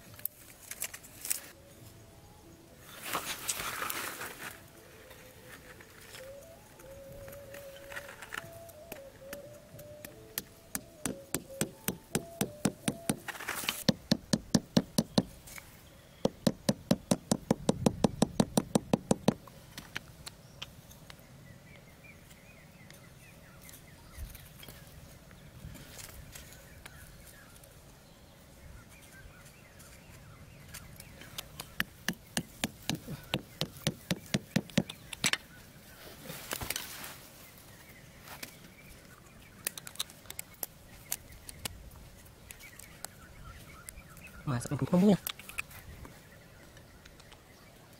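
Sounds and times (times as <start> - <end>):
axe hammering wooden stakes: 10.0 - 15.3, 16.2 - 19.4, 31.6 - 35.4.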